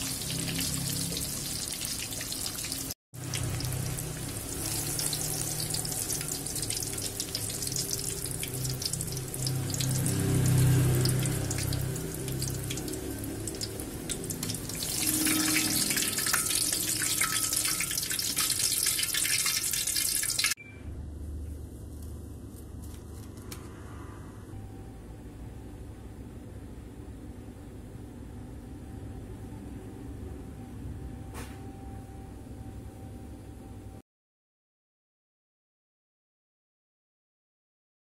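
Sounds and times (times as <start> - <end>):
food deep-frying in oil: 0.0 - 20.6.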